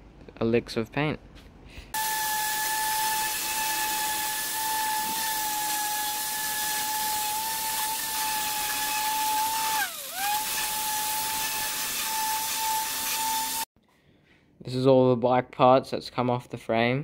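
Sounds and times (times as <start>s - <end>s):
orbital sander whining: 2.0s - 13.7s.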